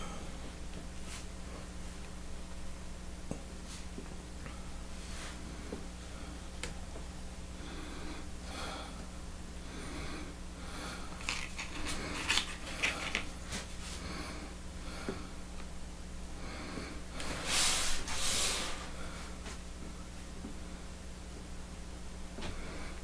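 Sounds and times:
man breathing heavily: 0.0 - 0.5, 7.5 - 11.2, 13.8 - 15.5, 16.3 - 17.5, 18.8 - 19.6, 22.4 - 23.0
steady low hum: 0.0 - 23.0.

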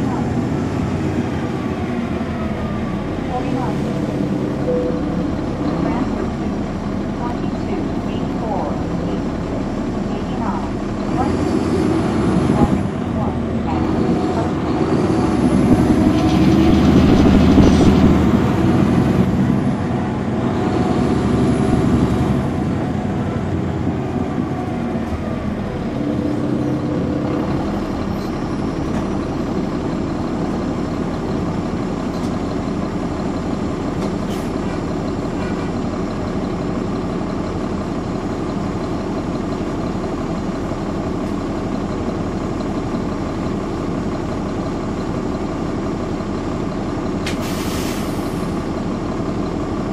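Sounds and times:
bus diesel engine running: 0.0 - 49.9.

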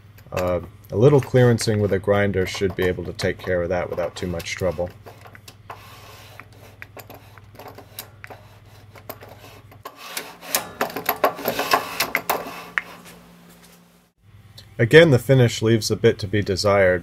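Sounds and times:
low steady hum: 0.0 - 17.0
metal scraping on metal: 0.4 - 13.2.

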